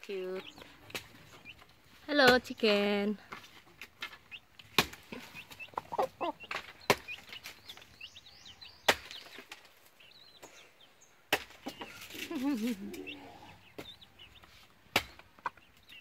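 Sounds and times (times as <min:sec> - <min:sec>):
hen clucking: 0:04.1 - 0:09.3, 0:11.6 - 0:16.0
high bird chirps: 0:05.2 - 0:14.6.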